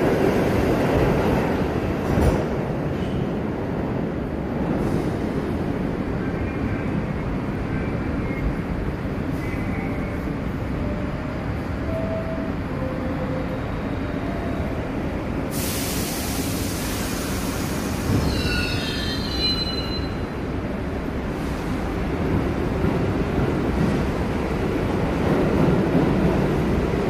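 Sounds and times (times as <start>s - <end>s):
subway train rumble: 0.0s - 27.0s
loud air hiss: 15.4s - 18.4s.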